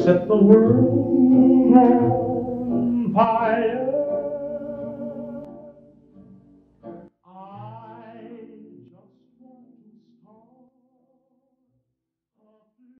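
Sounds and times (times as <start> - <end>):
short sung note: 0.6 - 5.7.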